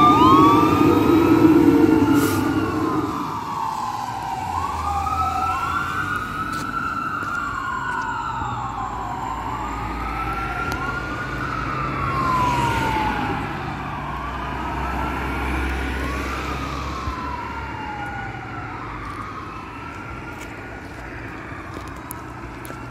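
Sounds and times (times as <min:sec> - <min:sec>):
low engine rumble: 0:00.0 - 0:06.2
fire engine siren wailing: 0:00.0 - 0:22.9.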